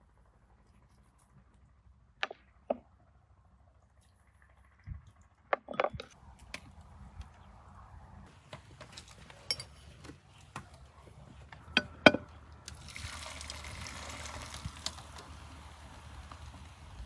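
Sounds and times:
beer pouring and splashing: 12.6 - 16.9.

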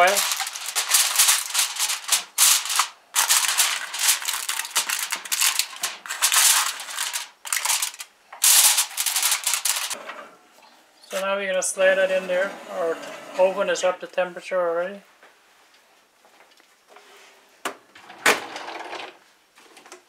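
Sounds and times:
aluminium foil crinkling: 0.0 - 10.0.

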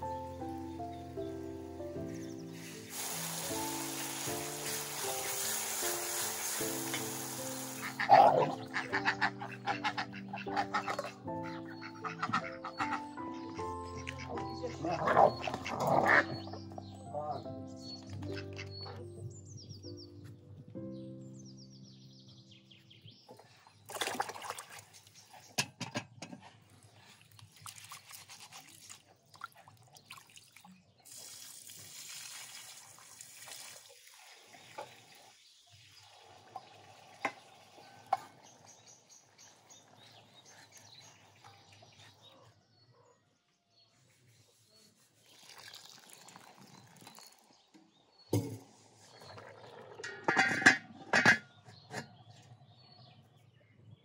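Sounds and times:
liquid pouring: 2.7 - 8.6, 29.6 - 37.8, 45.2 - 47.6, 48.4 - 50.6
metal lid clanking onto pot: 50.0 - 52.2.

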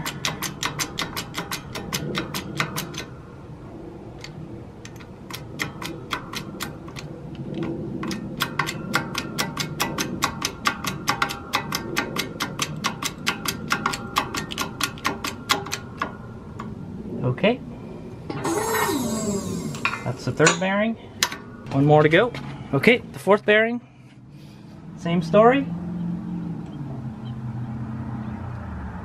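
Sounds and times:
rapid even clicking: 0.0 - 3.1, 4.2 - 16.7.

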